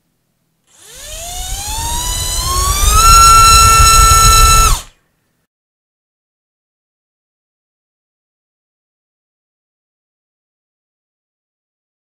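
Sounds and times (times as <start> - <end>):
electric motor propeller whine: 0.7 - 4.9.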